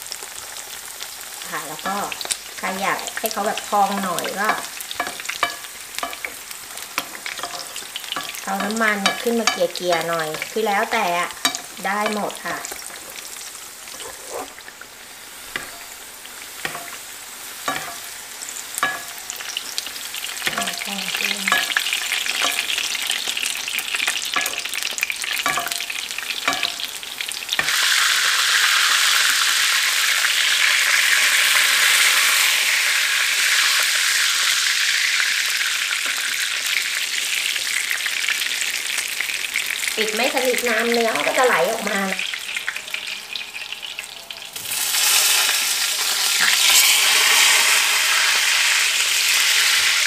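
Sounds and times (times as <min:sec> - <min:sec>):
oil sizzling in a frying pan: 0:00.0 - 0:50.0
metal spoon clinking and scraping: 0:04.5 - 0:06.4, 0:07.0 - 0:10.6, 0:11.4 - 0:13.2, 0:15.5 - 0:16.0, 0:16.6 - 0:17.0, 0:17.7 - 0:18.1, 0:18.8 - 0:19.2, 0:20.4 - 0:20.9, 0:21.5 - 0:22.8, 0:24.3 - 0:24.8, 0:25.4 - 0:26.9.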